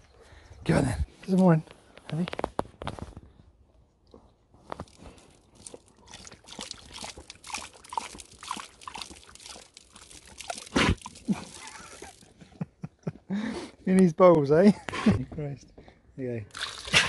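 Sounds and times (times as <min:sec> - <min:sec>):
water sloshing in bottle: 0:04.7 - 0:12.4, 0:16.5 - 0:17.0
dog lapping water: 0:04.8 - 0:12.4, 0:16.5 - 0:17.0.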